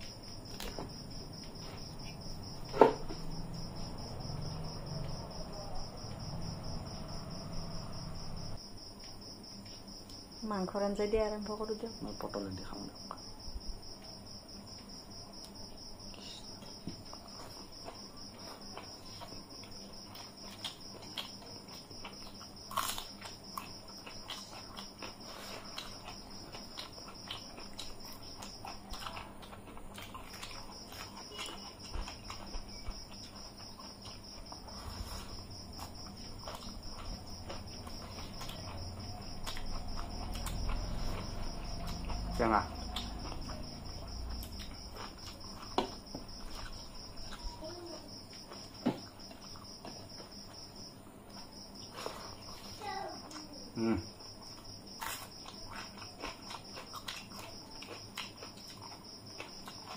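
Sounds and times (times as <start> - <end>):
cricket trilling: 0.0 - 59.9
chewing and lip smacks: 20.0 - 34.7, 35.8 - 47.5, 54.5 - 59.9.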